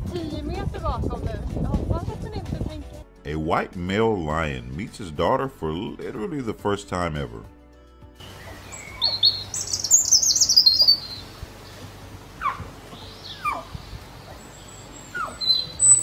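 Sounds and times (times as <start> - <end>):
birds chirping: 8.2 - 16.0.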